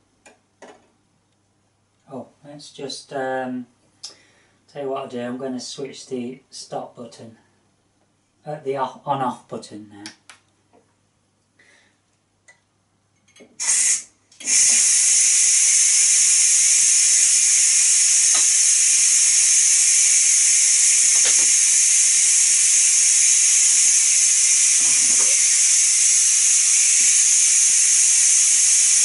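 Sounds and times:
pressure cooker valve hissing steam: 13.6 - 29.0.

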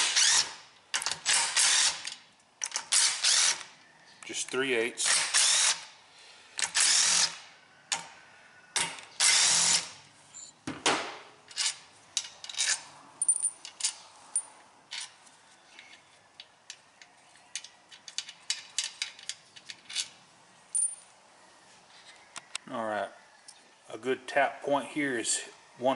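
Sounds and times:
impact driver bursts: 5.1 - 5.9
metal bolts clicking: 17.5 - 21.0.

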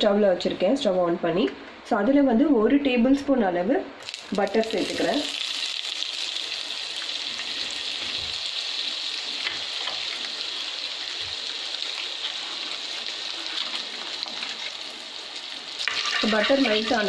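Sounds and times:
butter sizzling in a pan: 4.0 - 17.0.

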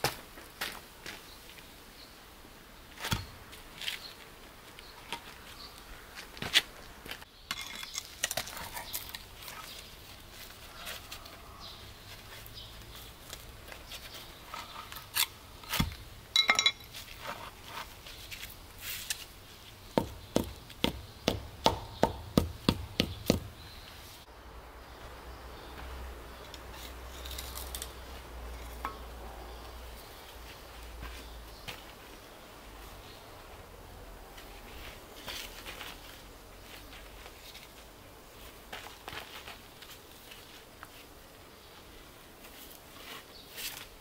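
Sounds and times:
ringing clink: 16.4 - 16.9.

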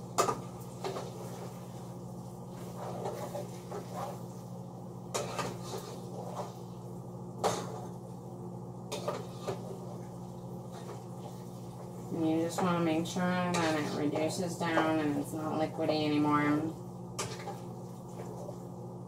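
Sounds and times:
steady low hum: 0.0 - 19.0
spoon stirring a pot: 2.5 - 6.7, 8.8 - 16.2, 17.1 - 18.7.

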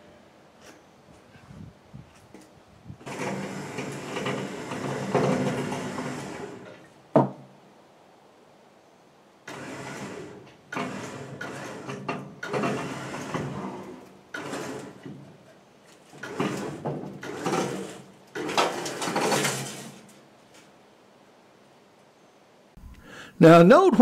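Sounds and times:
winch motor running: 3.0 - 6.9, 9.5 - 15.4, 16.0 - 19.7.

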